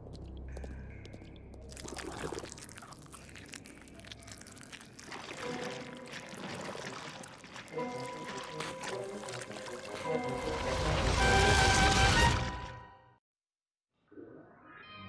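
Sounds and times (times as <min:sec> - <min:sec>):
cartoon slime oozing and splatting: 0:01.7 - 0:12.4.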